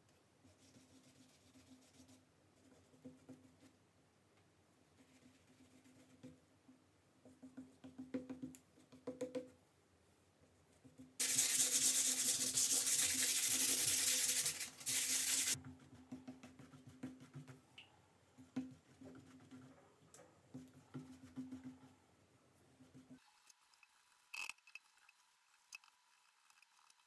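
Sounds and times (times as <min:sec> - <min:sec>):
sandpaper rubbing on canvas: 0:11.2 - 0:15.6.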